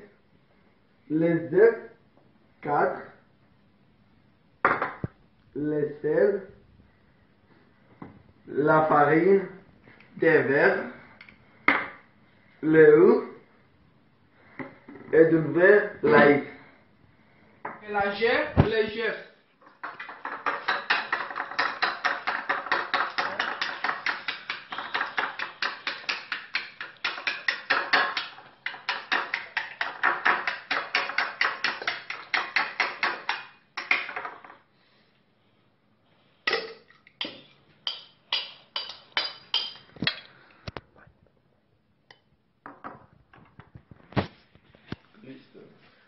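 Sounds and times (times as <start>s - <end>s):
fork beating eggs in bowl: 19.8s - 34.1s, 37.2s - 40.2s.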